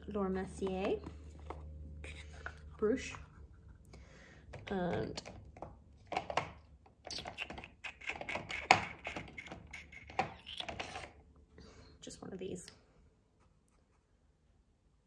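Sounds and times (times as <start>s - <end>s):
makeup brushes and cases clicking: 4.5s - 11.1s.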